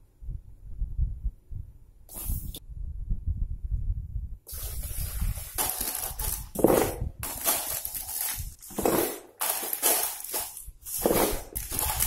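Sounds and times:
ice cubes rattling and crunching: 4.5s - 12.0s.

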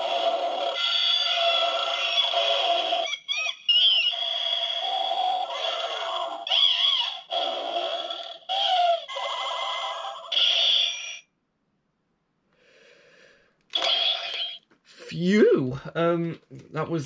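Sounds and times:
toy electronic voice and effects: 0.0s - 11.2s, 13.7s - 14.6s.

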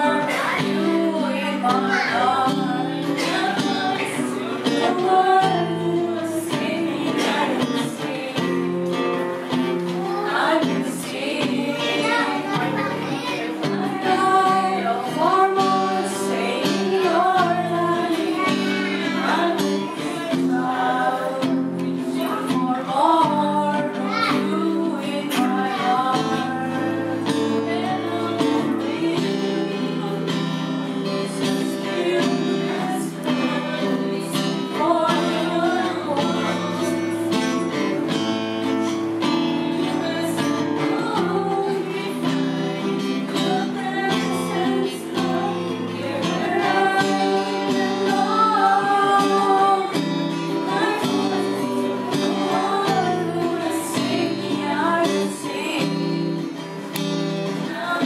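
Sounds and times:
strummed acoustic guitar: 0.0s - 58.0s
women singing a worship song: 0.0s - 58.0s.

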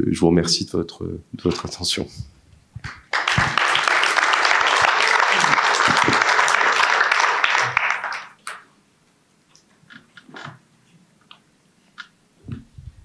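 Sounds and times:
audience applauding: 2.8s - 8.6s.

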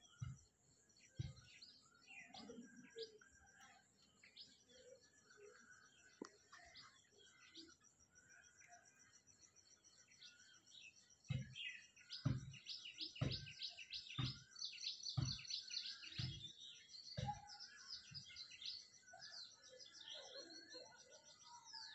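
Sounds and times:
small birds chirping: 0.0s - 21.9s
dull low thuds: 0.1s - 1.7s, 11.2s - 16.5s.

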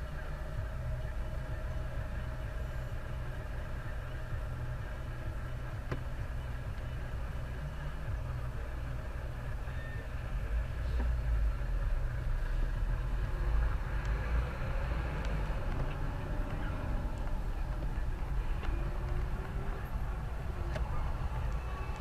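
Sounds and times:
car engine rumble: 0.0s - 22.0s
road noise: 0.0s - 22.0s.

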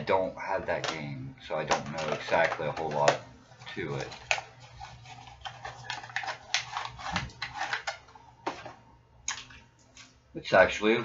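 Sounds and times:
packaging clicking and clattering: 1.7s - 9.6s.

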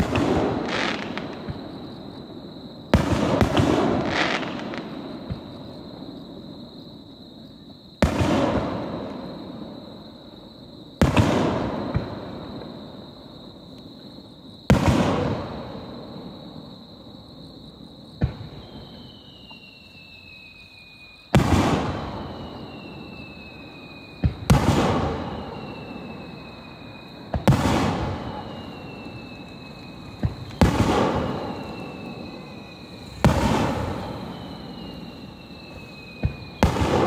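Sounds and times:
sharp firework cracks: 0.0s - 1.6s, 21.3s - 22.8s, 24.0s - 37.0s
firework booms with echoing rumble: 0.0s - 6.8s, 8.0s - 13.1s, 14.6s - 16.8s, 17.9s - 19.5s, 21.3s - 37.0s.

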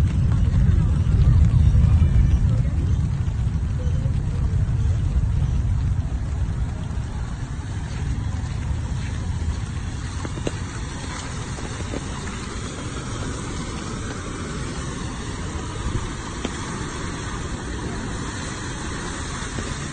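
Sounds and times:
wind rumble on microphone: 0.0s - 19.9s
car driving through floodwater: 0.6s - 19.9s
water spray hissing: 7.4s - 19.9s.

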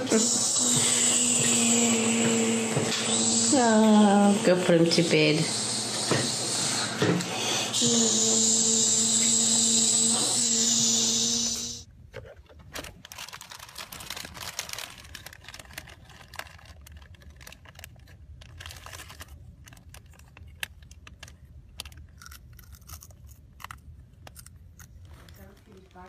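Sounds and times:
foil snack bag crinkling: 12.6s - 26.0s.

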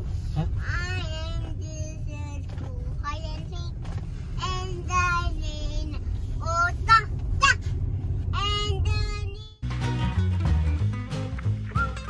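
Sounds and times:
moving car rumble: 0.0s - 12.0s
toddler singing: 4.4s - 7.6s, 8.4s - 9.6s.

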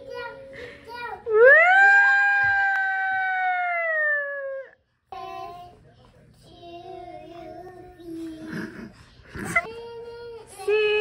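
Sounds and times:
child singing: 5.1s - 8.8s, 9.6s - 11.0s.

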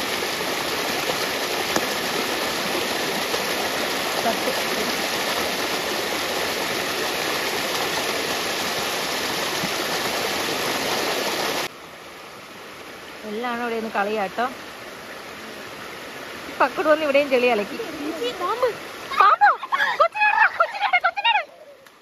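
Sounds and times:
stream rushing over rocks: 0.0s - 22.0s.

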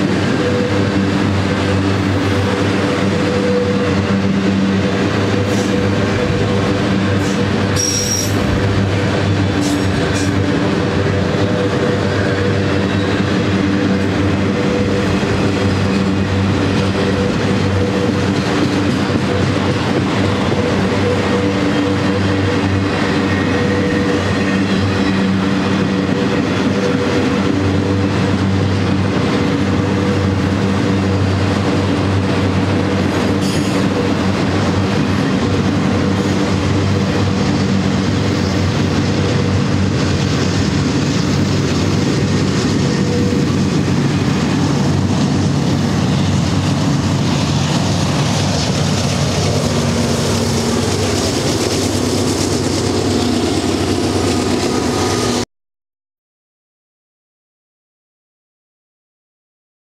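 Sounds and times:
freight train rolling past: 0.0s - 55.4s
high wheel squeal: 5.3s - 8.6s.

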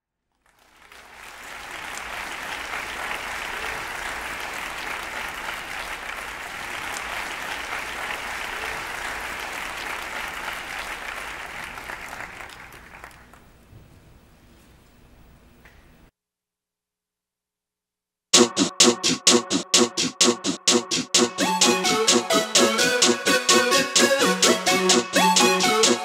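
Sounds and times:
audience applauding: 0.4s - 13.6s.

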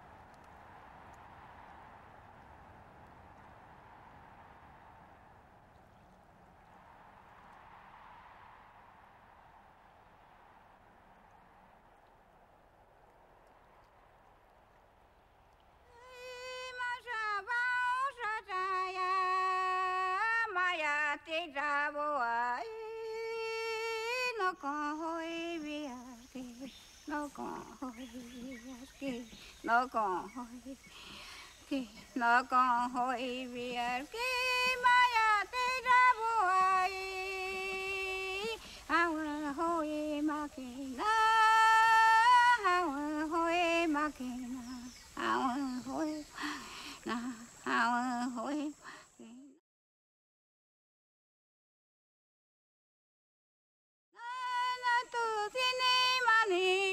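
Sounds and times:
woman singing unaccompanied: 15.9s - 49.6s, 54.2s - 56.9s.

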